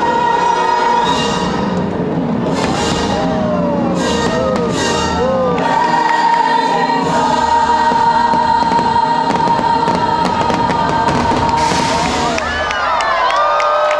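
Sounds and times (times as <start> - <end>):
choir singing over music: 0.0 - 12.4
firework bangs and crackle: 1.8 - 5.2, 7.2 - 12.6.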